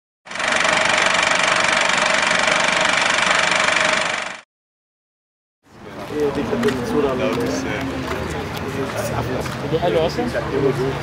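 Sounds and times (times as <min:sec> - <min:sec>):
engine idling: 0:00.3 - 0:04.4.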